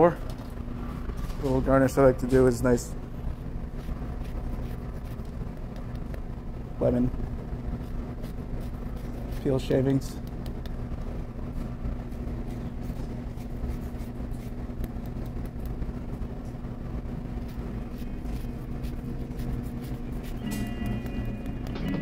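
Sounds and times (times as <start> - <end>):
steady low hum: 0.0 - 22.0
grater scratching peel: 17.4 - 21.9.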